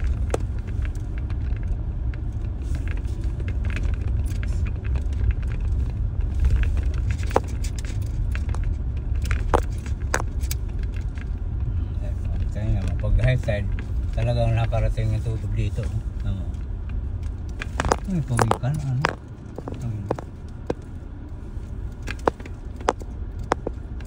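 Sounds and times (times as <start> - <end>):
small rattles and clicks: 0.0 - 11.4, 16.2 - 20.9, 21.9 - 24.0
car rumbling over rough track: 0.0 - 24.0
sharp knocks: 17.8 - 20.3, 22.2 - 23.8.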